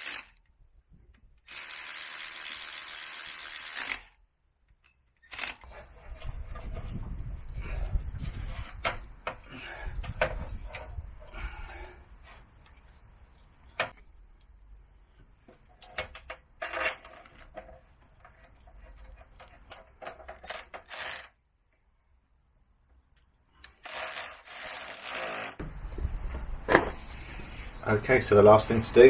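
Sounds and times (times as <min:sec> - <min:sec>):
metal parts and tools clattering: 0:15.7 - 0:21.3.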